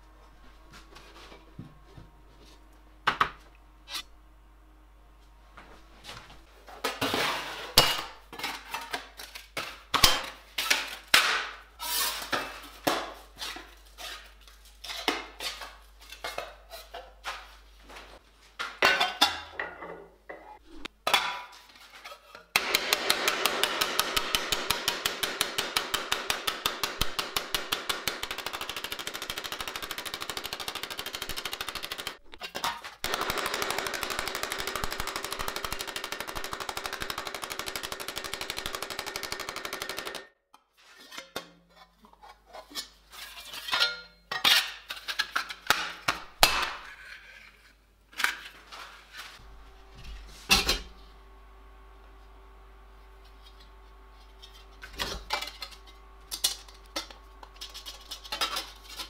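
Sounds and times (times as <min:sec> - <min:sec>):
rapid hammer blows on metal: 0:22.6 - 0:32.2.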